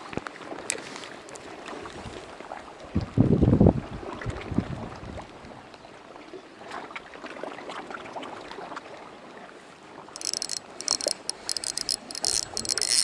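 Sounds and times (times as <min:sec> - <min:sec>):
water lapping on rocks: 0:00.0 - 0:05.5, 0:06.1 - 0:13.0
faint ticks: 0:10.2 - 0:13.0
fishing reel whirring: 0:10.2 - 0:13.0.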